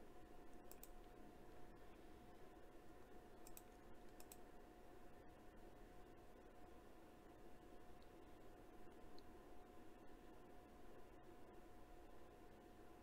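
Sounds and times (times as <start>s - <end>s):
computer clicks: 0.6s - 1.1s, 3.4s - 4.5s.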